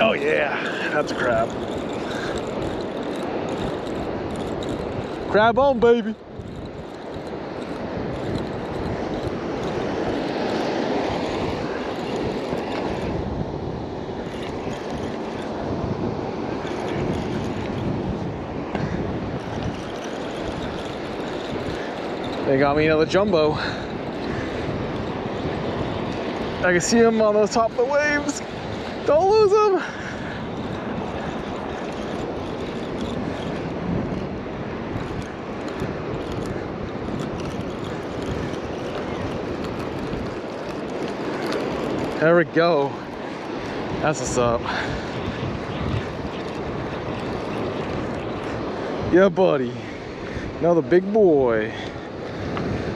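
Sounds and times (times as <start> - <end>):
fishing reel cranking: 0.0 - 15.8, 16.4 - 49.0
ocean surf: 0.0 - 52.9
wind on microphone: 0.0 - 52.9
faint ticks: 23.5 - 27.2, 34.9 - 42.2.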